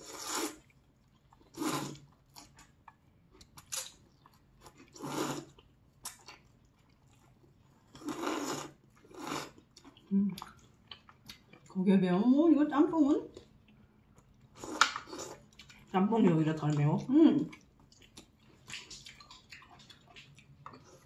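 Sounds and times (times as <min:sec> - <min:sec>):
noodles being slurped: 0:00.0 - 0:00.8, 0:01.5 - 0:02.5, 0:04.8 - 0:05.6, 0:07.8 - 0:09.6
faint chewing: 0:00.0 - 0:11.8, 0:13.2 - 0:21.0.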